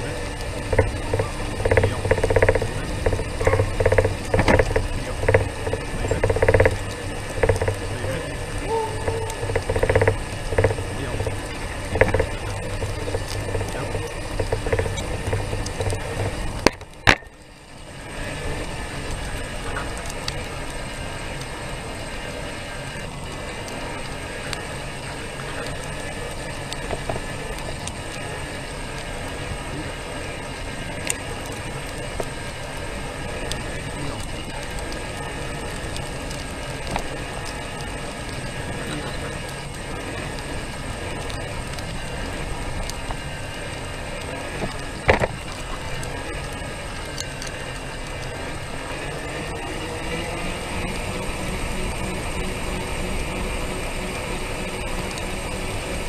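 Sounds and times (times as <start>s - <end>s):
ticks and clicks: 0.0s - 17.8s, 23.2s - 29.2s, 30.4s - 56.0s
small vehicle rolling and rattling: 0.0s - 56.0s.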